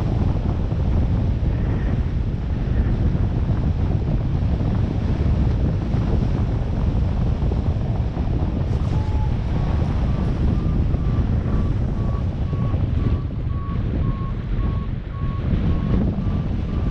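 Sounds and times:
wind buffeting microphone: 0.0 - 16.9
short beep: 8.8 - 15.9.

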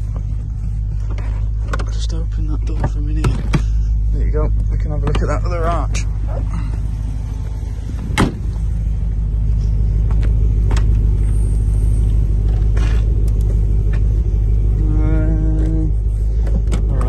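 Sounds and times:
car engine idling: 0.0 - 17.0
sharp thump: 8.1 - 8.5.

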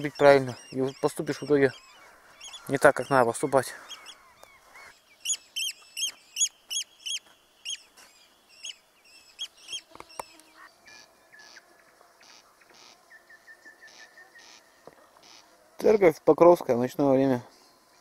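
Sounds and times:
bird calling: 0.0 - 15.7.

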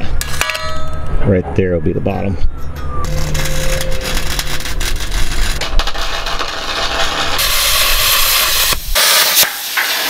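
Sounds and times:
plasma torch hissing: 5.8 - 10.0.

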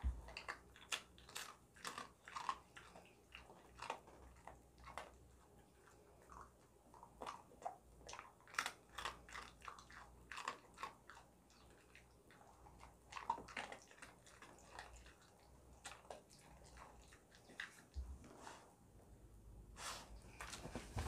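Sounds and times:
dog crunching a treat: 0.1 - 18.0.

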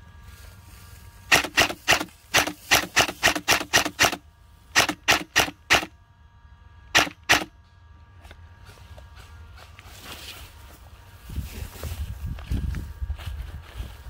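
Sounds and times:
airsoft rifle single shots: 1.3 - 4.2, 4.8 - 5.9, 7.0 - 7.5.

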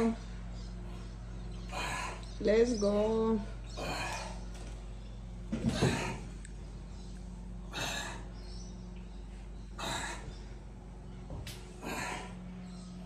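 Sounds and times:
steady low hum: 0.0 - 13.0
man breathing hard: 0.8 - 2.3, 7.6 - 8.4, 9.4 - 10.6, 11.7 - 12.6.

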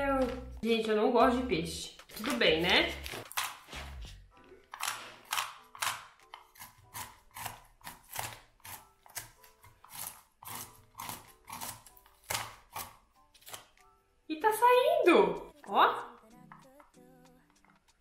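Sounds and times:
fish scaler scraping scales: 4.7 - 13.7.

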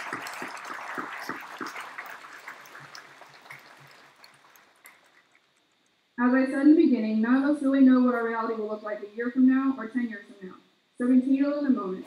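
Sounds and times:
crowd applauding: 0.0 - 5.6.

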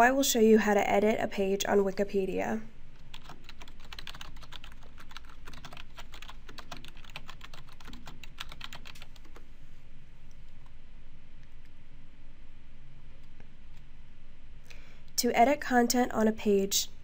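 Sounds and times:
steady low hum: 0.0 - 17.0
typing on a keyboard: 3.1 - 9.4.

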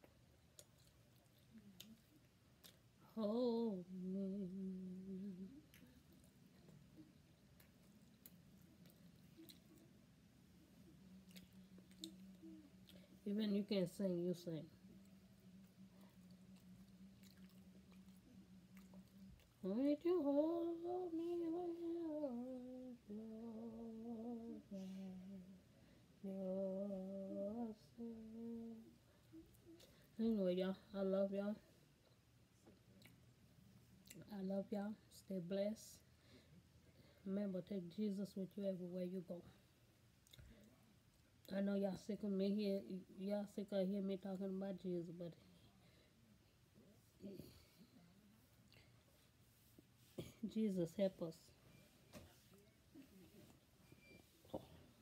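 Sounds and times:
woman humming: 3.1 - 6.0, 19.6 - 25.6, 26.2 - 29.5.

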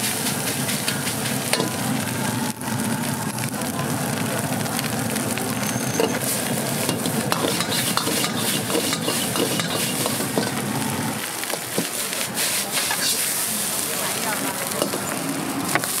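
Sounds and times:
rice sizzling in a wok: 0.0 - 16.0
metal ladle scraping a wok: 6.0 - 10.7, 11.9 - 13.5.

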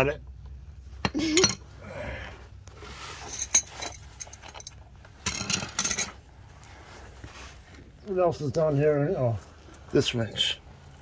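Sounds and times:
metal hand tools clinking: 3.2 - 6.2.

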